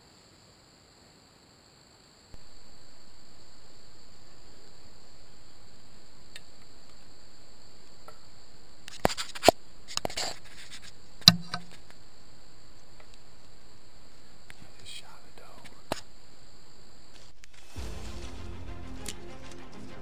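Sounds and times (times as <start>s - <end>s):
high-pitched insect chirring: 2.4s - 17.3s.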